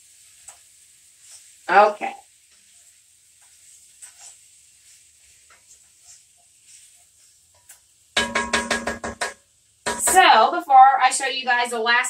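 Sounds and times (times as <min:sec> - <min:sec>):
faint food sizzling in pot: 0:00.0 - 0:12.0
wooden spoon scraping pan: 0:01.2 - 0:01.6, 0:02.5 - 0:09.3.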